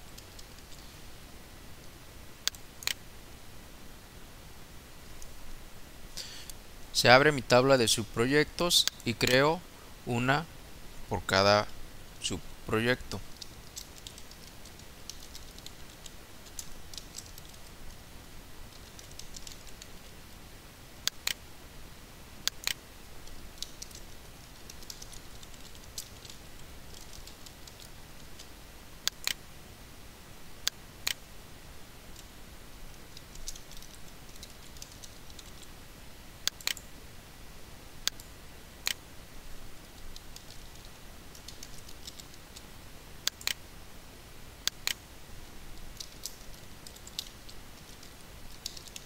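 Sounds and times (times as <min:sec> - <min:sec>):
keyboard typing clicks: 0:36.5 - 0:36.9, 0:40.0 - 0:42.4, 0:43.3 - 0:43.6.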